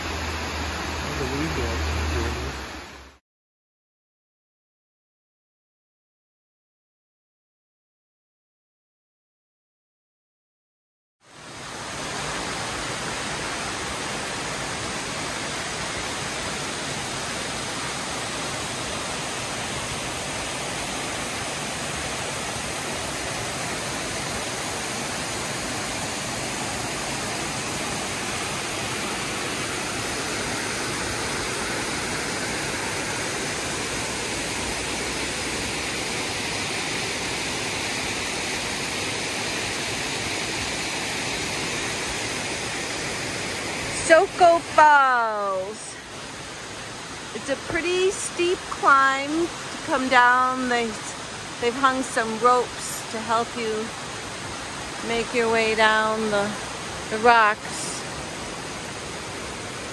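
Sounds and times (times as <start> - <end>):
creek rushing over rocks: 11.3 - 59.9.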